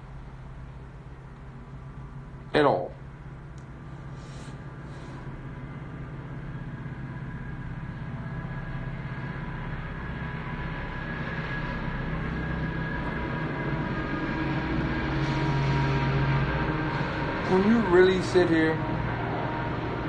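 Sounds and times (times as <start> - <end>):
low mechanical rumble with hum: 0.0 - 20.0.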